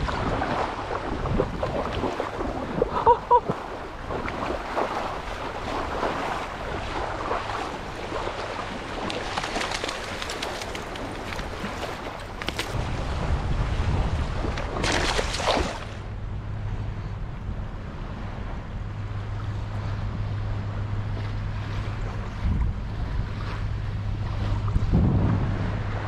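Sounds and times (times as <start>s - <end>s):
shallow water splashing: 0.0s - 16.2s
wind on microphone: 0.0s - 26.0s.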